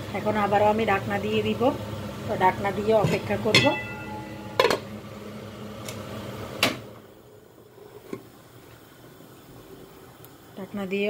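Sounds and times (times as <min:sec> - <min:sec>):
simmering pot hissing: 0:00.0 - 0:11.0
metal lid clinking on pot: 0:03.5 - 0:04.8.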